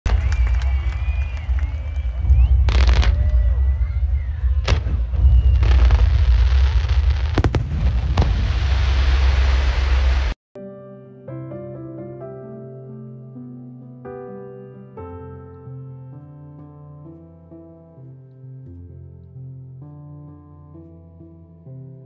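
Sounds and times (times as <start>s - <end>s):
low rumble: 1.7s - 10.4s
fireworks bangs: 1.8s - 10.4s
fireworks crackling: 4.7s - 10.4s.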